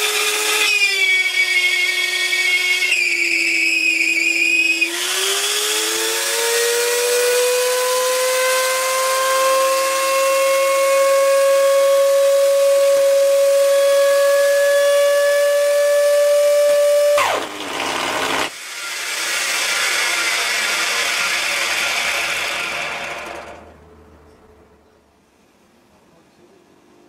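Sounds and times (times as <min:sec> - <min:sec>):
electric mower motor whining: 0:04.8 - 0:18.6, 0:19.7 - 0:23.8.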